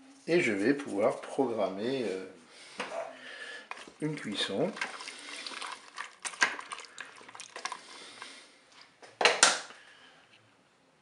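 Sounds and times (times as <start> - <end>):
spoon scraping and sloshing: 3.7 - 8.4.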